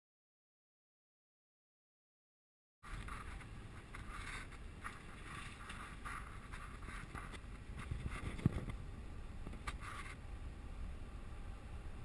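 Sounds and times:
car engine and road rumble: 2.9 - 12.0.

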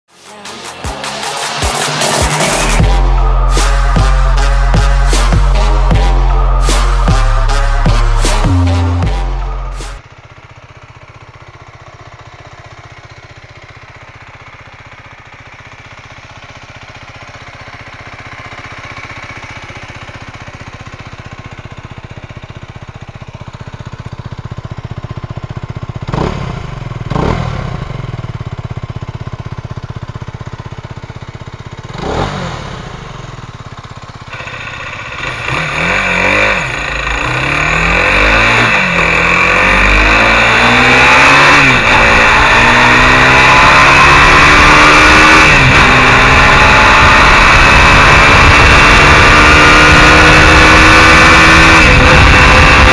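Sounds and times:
motorcycle engine idling and revving: 0.0 - 52.9
motorcycle accelerating away: 15.6 - 52.9.

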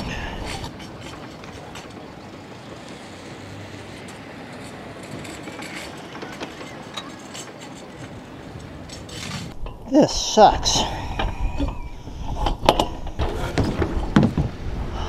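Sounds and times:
wind rushing across microphone: 7.9 - 15.0.

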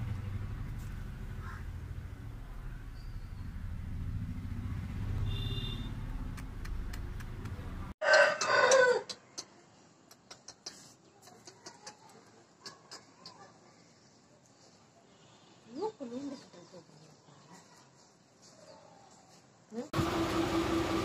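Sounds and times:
rooster crowing: 8.0 - 9.1.

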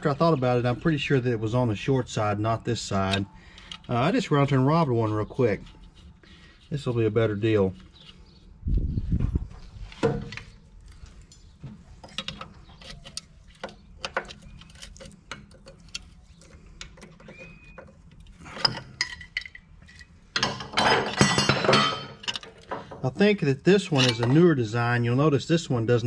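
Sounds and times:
hand tools clinking on metal: 17.4 - 23.0, 23.8 - 24.5
metal clanking: 18.3 - 23.1, 23.9 - 24.4.

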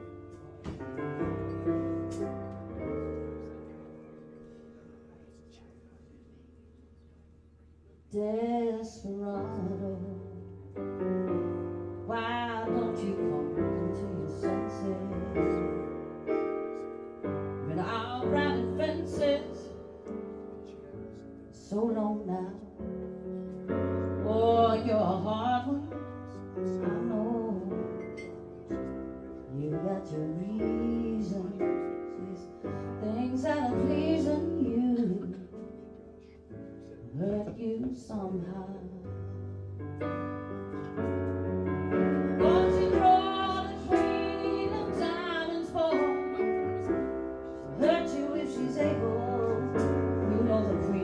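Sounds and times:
woman singing: 8.1 - 10.6, 12.0 - 16.0, 17.6 - 19.8, 21.6 - 22.9, 24.2 - 28.1, 29.4 - 35.7, 37.1 - 39.5, 42.0 - 51.0
electric keyboard chords: 38.8 - 51.0.

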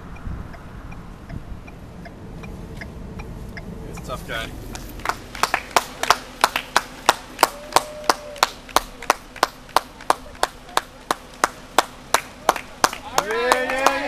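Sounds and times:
person clapping hands: 4.8 - 14.0.

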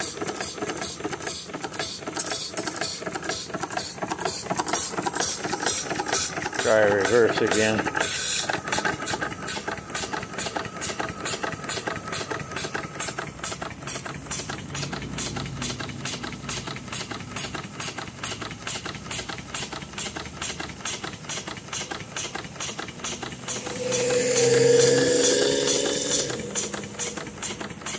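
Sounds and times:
steam engine beating rhythmically: 16.1 - 27.9.

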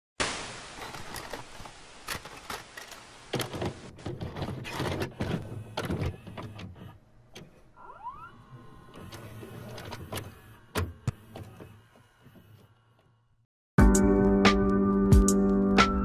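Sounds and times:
tape mechanism clunks and clicks: 2.0 - 7.7, 8.9 - 12.6
mechanical whirring: 4.6 - 13.0.

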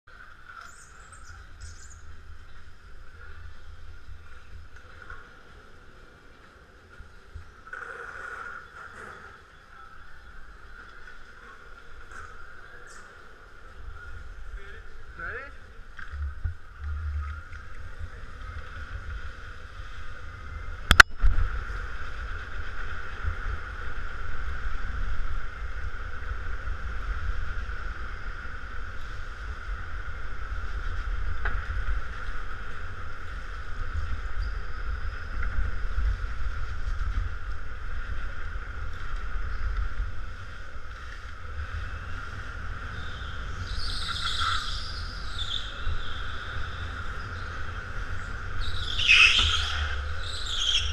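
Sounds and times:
wind and vibration rumble: 0.1 - 50.9.

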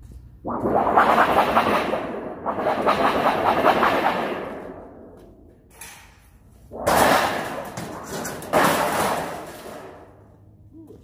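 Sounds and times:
sheet metal scraping and rattling: 5.7 - 10.2
metal crashing onto scrap heap: 6.8 - 10.2.

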